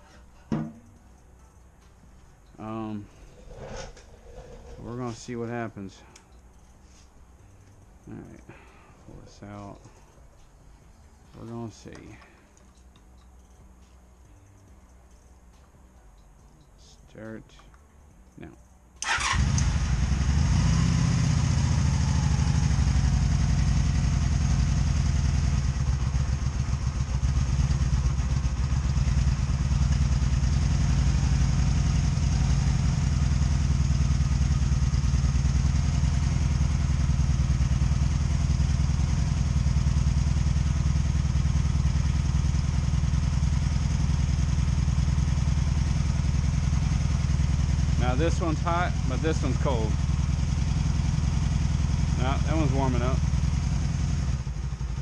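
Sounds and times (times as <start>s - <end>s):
motorcycle engine idling: 0.0s - 55.0s.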